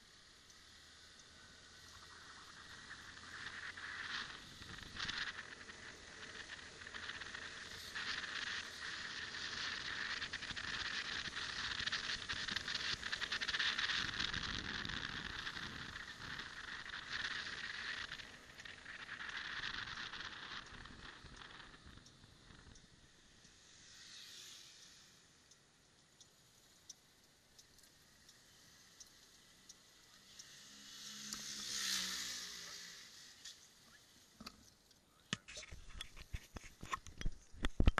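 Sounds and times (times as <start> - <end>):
rushing noise with low hum: 0.0 - 25.2
light regular ticking: 0.0 - 37.9
wind and road noise: 0.0 - 37.9
rapid crackling and rattling: 1.8 - 23.8.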